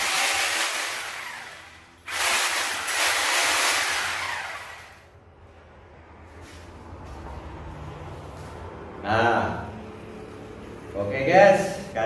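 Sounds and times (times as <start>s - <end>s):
rotary hammer drill: 0.0s - 5.1s.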